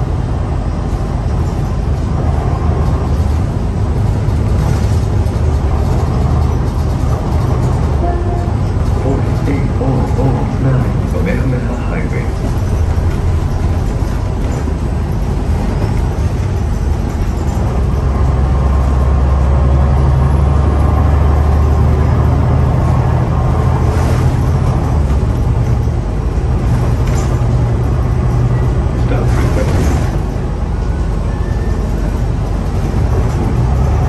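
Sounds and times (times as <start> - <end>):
bus engine low drone: 0.0 - 34.0
road noise: 0.0 - 34.0.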